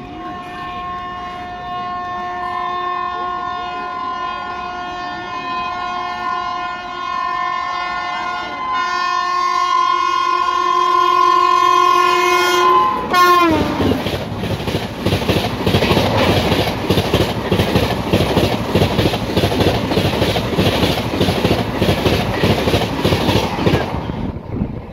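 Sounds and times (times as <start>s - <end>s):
train horn: 0.0s - 14.0s
train wheels clattering over rail joints: 13.5s - 24.2s.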